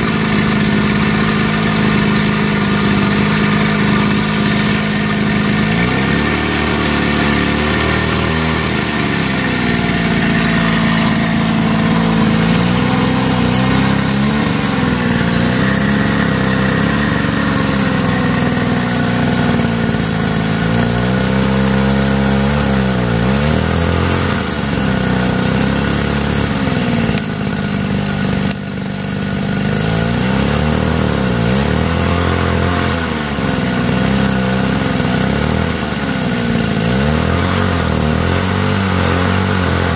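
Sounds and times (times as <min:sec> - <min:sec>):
hydraulic pump running: 0:00.0 - 0:39.9.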